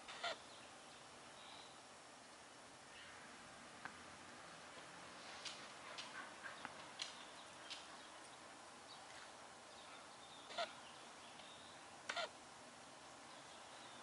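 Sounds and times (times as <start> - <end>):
dog squeaking: 10.5 - 10.8.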